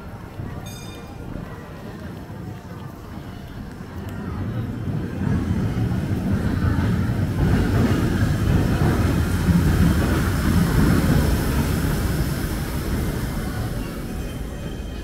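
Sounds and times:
train rumbling on elevated track: 0:03.1 - 0:15.0.

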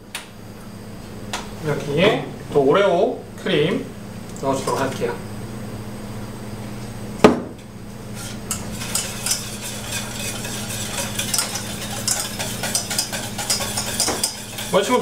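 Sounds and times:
wire whisk scraping saucepan: 0:08.1 - 0:15.0.

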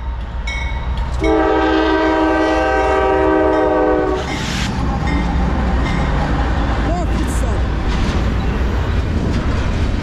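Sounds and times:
diesel locomotives rumbling past: 0:00.0 - 0:10.0
locomotive air horn blast: 0:01.2 - 0:04.4.

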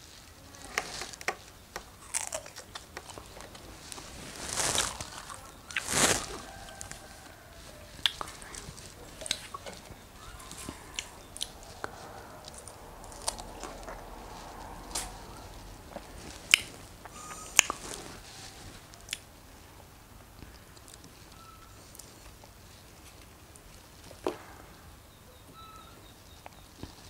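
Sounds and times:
person chewing strawberries: 0:00.0 - 0:19.3.

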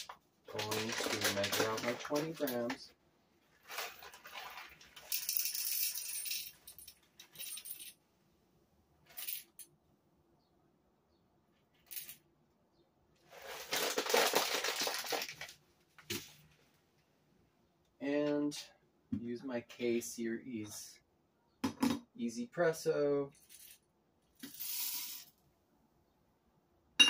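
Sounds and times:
coffee beans rattling into metal cup: 0:00.0 - 0:02.8, 0:03.6 - 0:07.9, 0:13.3 - 0:15.5, 0:24.4 - 0:25.3
bag rustling: 0:03.5 - 0:05.1, 0:13.3 - 0:15.5.

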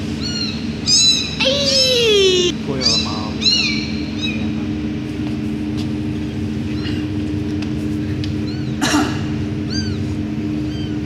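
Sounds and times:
steady low hum: 0:00.0 - 0:11.0
kittens mewing: 0:00.9 - 0:03.6.

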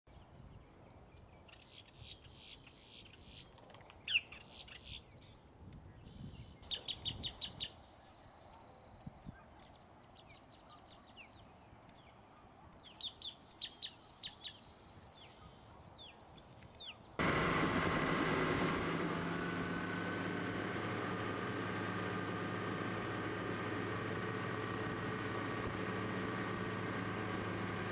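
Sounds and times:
small birds chirping: 0:01.4 - 0:17.2
outboard motor running: 0:17.2 - 0:27.9.

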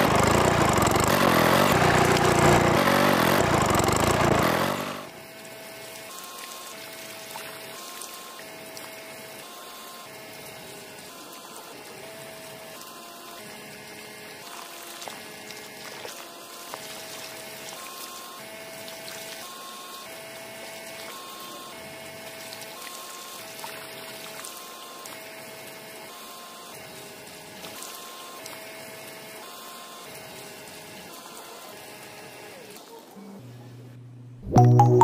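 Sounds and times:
water pouring and splashing: 0:05.3 - 0:09.6, 0:13.4 - 0:19.5, 0:22.2 - 0:25.4
soft background melody: 0:34.5 - 0:35.0.

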